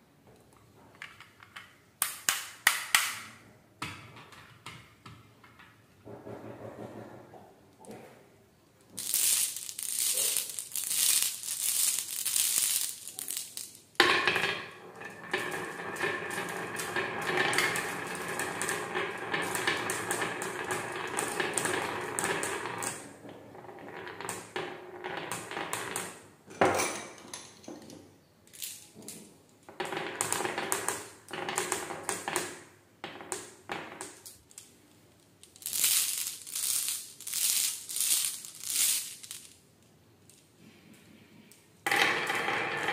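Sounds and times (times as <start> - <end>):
glass marbles clinking in hand: 9.0 - 13.8, 35.4 - 39.5
marbles rolling on wooden track: 9.0 - 26.3, 28.6 - 34.6, 35.4 - 39.6, 41.8 - 42.9.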